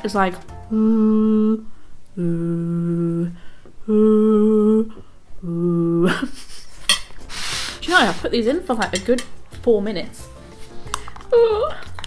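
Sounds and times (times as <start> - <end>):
woman humming droning tones: 0.7 - 6.2.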